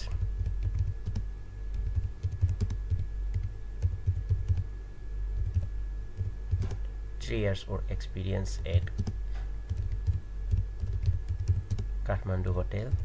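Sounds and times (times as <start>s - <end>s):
typing on computer keyboard: 0.2s - 4.6s, 5.4s - 6.8s, 8.8s - 11.9s.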